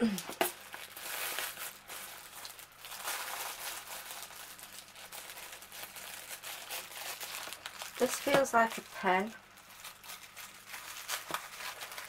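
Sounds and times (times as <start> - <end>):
plastic mailer bag crinkling: 0.4 - 12.0.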